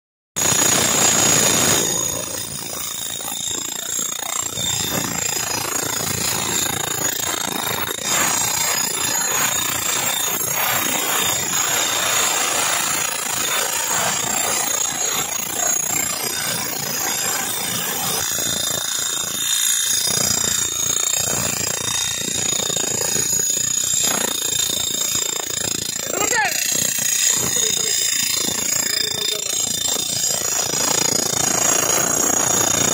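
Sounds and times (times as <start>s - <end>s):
electric power tool whirring: 0.4s - 32.9s.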